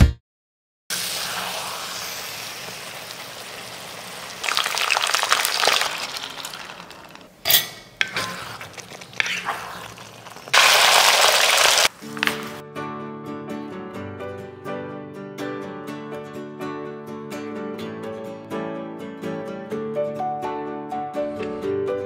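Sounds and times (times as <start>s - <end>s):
gravy sizzling in a pan: 0.9s - 7.3s, 8.1s - 12.6s.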